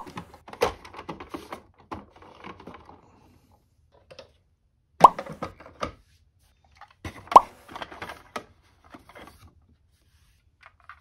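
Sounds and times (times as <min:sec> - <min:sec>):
plastic toys clicking and rattling: 0:00.0 - 0:03.0.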